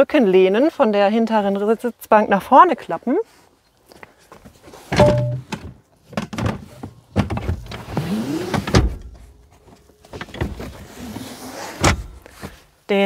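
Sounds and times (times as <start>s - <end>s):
latch clicks and knocks: 5.0s - 6.6s.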